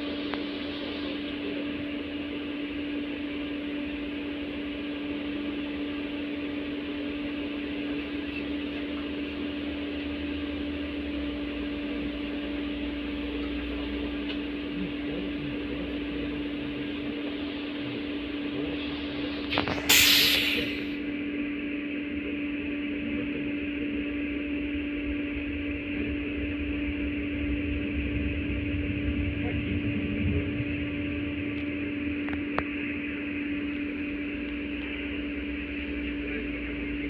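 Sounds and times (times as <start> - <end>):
tram interior hum: 0.0 - 37.0
low rumble: 24.7 - 36.2.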